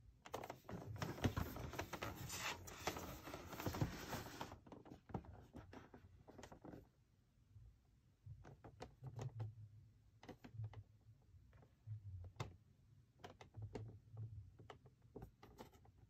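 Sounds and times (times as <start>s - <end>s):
fingers handling cardboard box: 0.3s - 6.8s.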